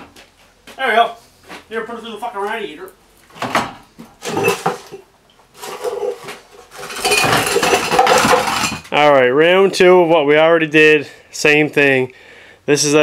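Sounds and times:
metal clattering and scraping: 0:04.2 - 0:09.0.

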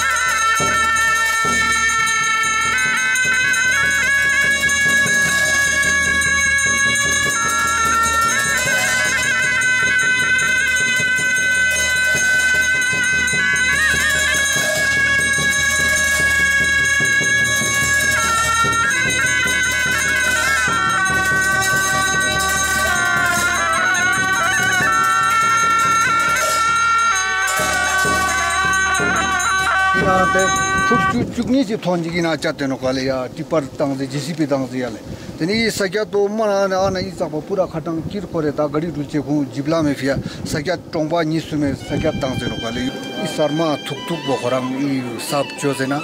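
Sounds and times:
double-reed horns playing long notes: 0:00.0 - 0:31.2, 0:41.7 - 0:46.0
hand cymbals clashing: 0:00.0 - 0:35.6.

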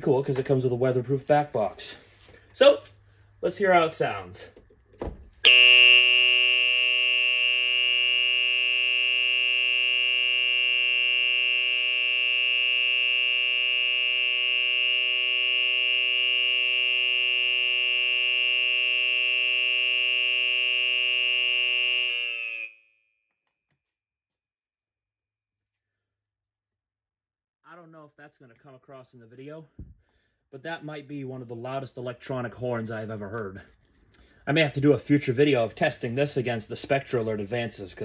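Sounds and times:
electronic fire horn tone: 0:05.4 - 0:22.9.

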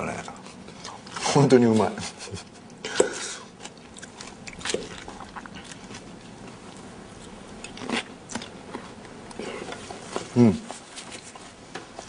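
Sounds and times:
person chewing: 0:02.5 - 0:11.3.

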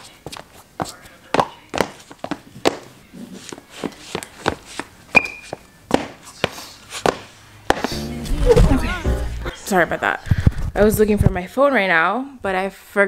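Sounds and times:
sneakers shuffling on tiled floor: 0:00.0 - 0:08.9
shoe squeak: 0:03.3 - 0:08.0.

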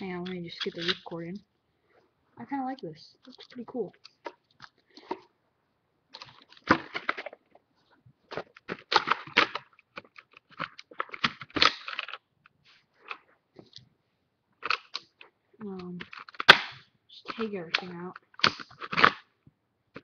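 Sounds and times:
plastic packaging crackling: 0:06.2 - 0:07.6, 0:08.3 - 0:12.2, 0:14.6 - 0:19.2.

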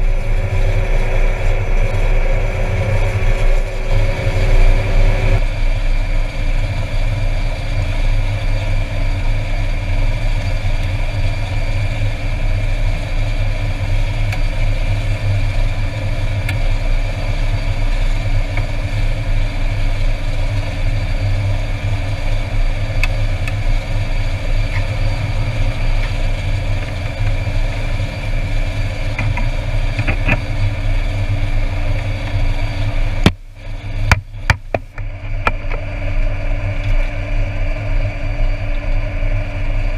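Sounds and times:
turboprop idling: 0:00.0 - 0:39.9.

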